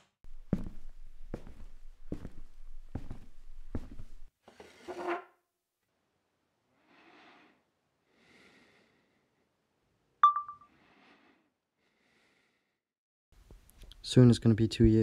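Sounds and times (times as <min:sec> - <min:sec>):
soft breath-like sounds: 0:06.7 - 0:09.6, 0:10.7 - 0:12.8
high-pitched ding: 0:10.2 - 0:10.7.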